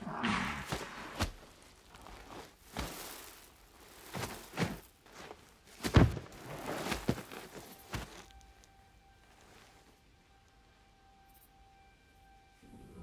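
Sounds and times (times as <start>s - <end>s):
heavy thuds in sand: 0.2s - 1.5s, 5.7s - 8.3s
hooves kicking: 0.2s - 9.7s.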